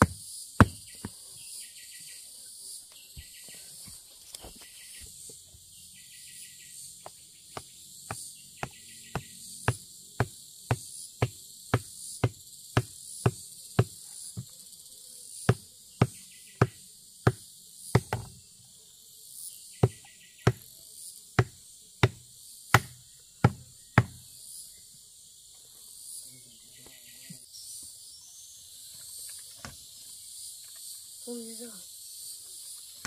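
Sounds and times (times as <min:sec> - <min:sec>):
stone knocking wooden stake: 0:00.0 - 0:01.2, 0:07.0 - 0:14.5, 0:18.0 - 0:18.4, 0:19.8 - 0:20.7, 0:21.4 - 0:24.2
insects chirping: 0:00.0 - 0:33.0.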